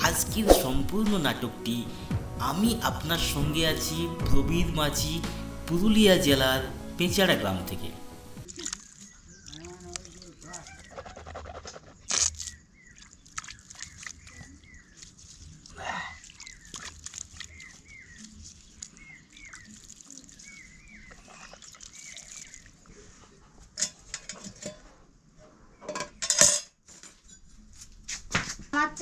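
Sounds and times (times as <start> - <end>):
water splashed and spat out: 8.4 - 22.8.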